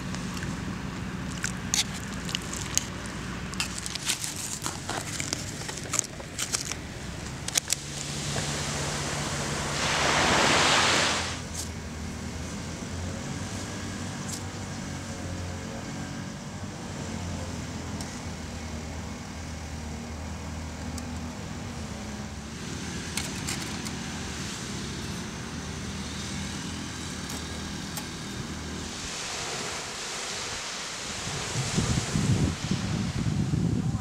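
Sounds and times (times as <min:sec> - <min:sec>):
distant road traffic rumble: 0:00.0 - 0:34.0
hiss: 0:07.6 - 0:11.7, 0:24.3 - 0:33.7.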